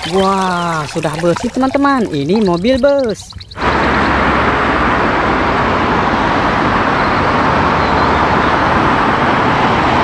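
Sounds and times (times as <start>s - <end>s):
bus engine and tyre rumble: 3.4s - 10.0s.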